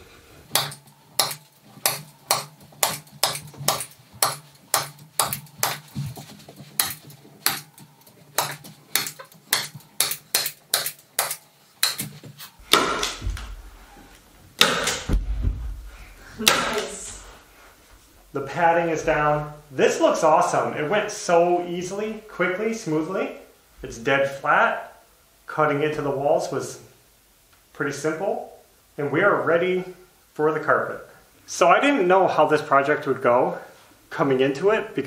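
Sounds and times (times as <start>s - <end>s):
thumps: 0.5s - 17.3s
rustling: 1.4s - 10.0s, 11.5s - 19.6s
staple gun firing: 14.6s - 15.1s.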